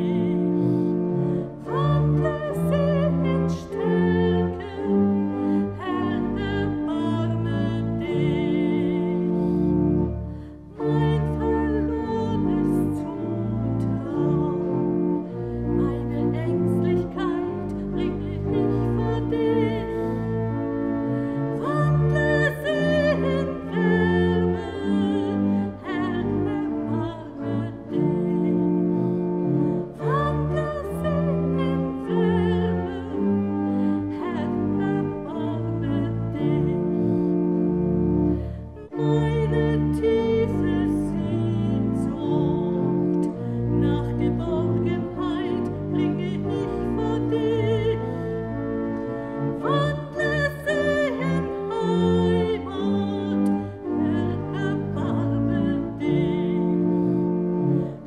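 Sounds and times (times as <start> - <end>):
instrumental accompaniment: 0.0 - 58.0
person singing a hymn: 0.0 - 58.0.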